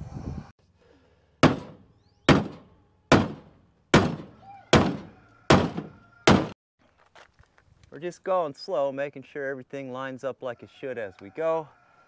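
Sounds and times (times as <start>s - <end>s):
hammer blows on metal: 1.4s - 6.6s.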